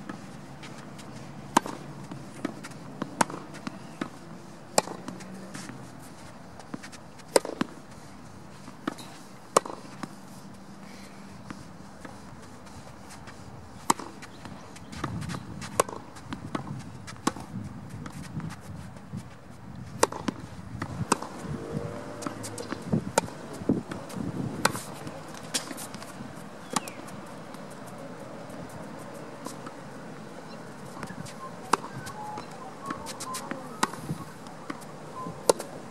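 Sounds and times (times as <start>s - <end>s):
footsteps on court: 0.0s - 35.9s
racket striking tennis ball: 1.5s - 5.8s, 6.7s - 7.8s, 8.8s - 10.1s, 13.8s - 14.2s, 15.0s - 17.5s, 20.0s - 35.8s.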